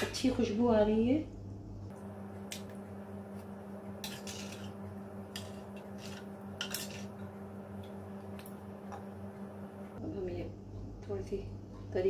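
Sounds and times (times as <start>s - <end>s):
steady low hum: 0.0s - 12.0s
spoon clinking and scraping pot: 4.0s - 9.0s.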